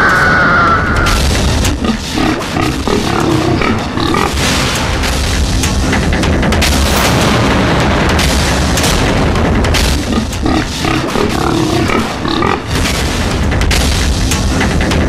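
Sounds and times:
pitched cry: 0:00.0 - 0:01.2
booming drum-like film music: 0:00.0 - 0:15.0.

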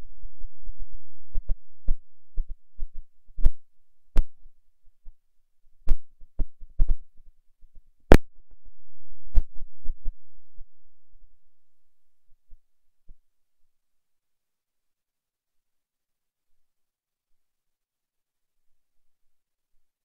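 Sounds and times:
low hum: 0:00.0 - 0:04.2, 0:08.1 - 0:12.4.

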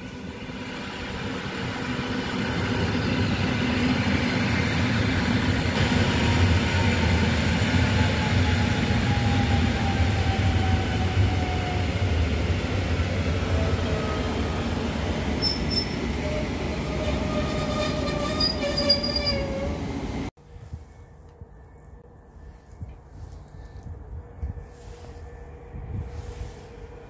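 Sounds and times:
train running noise with whine: 0:00.0 - 0:27.0
brake and wheel squeals: 0:15.4 - 0:19.9.

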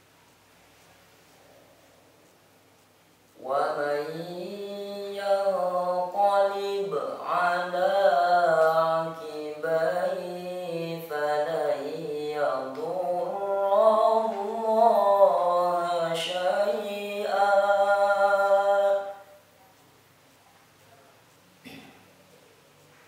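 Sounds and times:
boy reciting melodically: 0:02.3 - 0:19.6.

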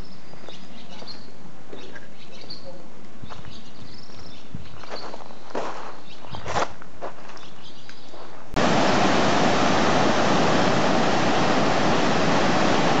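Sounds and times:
floodwater rushing: 0:08.6 - 0:13.0.

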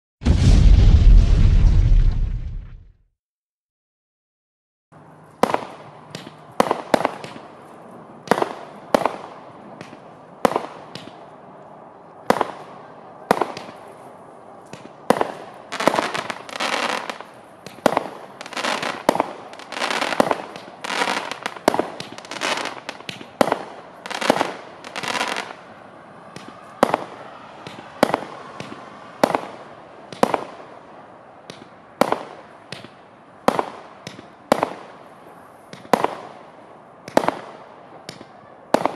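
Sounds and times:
fireworks bangs: 0:00.2 - 0:02.9, 0:14.7 - 0:30.7.

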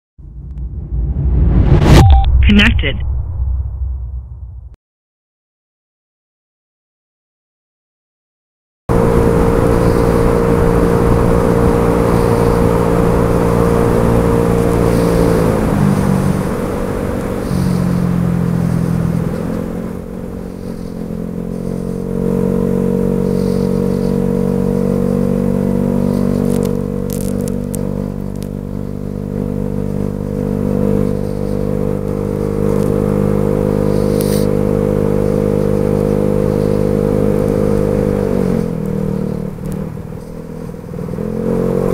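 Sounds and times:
scooter engine at high revs: 0:08.9 - 0:41.9.

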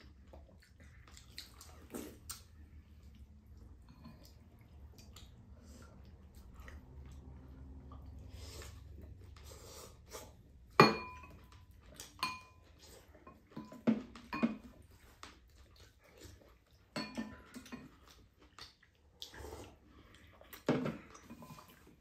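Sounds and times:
utensils clinking on ceramic bowls: 0:10.8 - 0:11.5, 0:12.2 - 0:14.8, 0:16.9 - 0:18.0.

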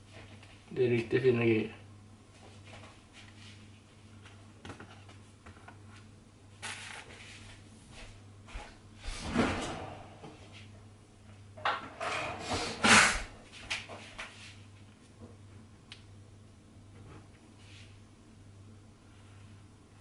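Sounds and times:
low steady hum: 0:00.0 - 0:20.0
kitchen drawer opening and shutting: 0:09.1 - 0:10.3, 0:11.6 - 0:13.3.

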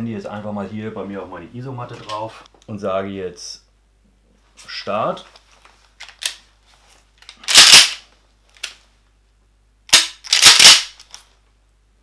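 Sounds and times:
shotgun metallic clacks: 0:07.4 - 0:08.0, 0:09.9 - 0:11.1
shotgun pump racking: 0:07.4 - 0:08.0, 0:09.9 - 0:11.2.

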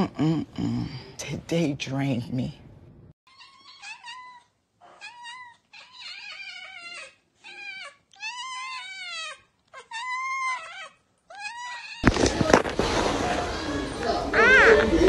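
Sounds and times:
cats meowing: 0:03.3 - 0:12.1, 0:14.0 - 0:15.0.

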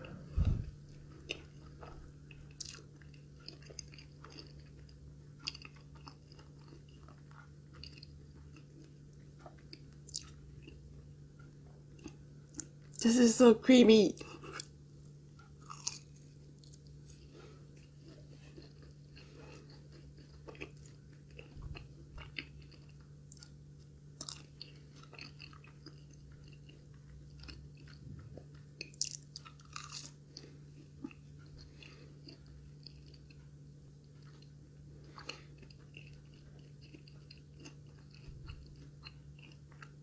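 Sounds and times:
chewing crunchy fried food: 0:00.0 - 0:13.0, 0:14.2 - 0:40.0
steady low hum: 0:00.0 - 0:40.0
wet mouth sounds: 0:00.1 - 0:00.8.

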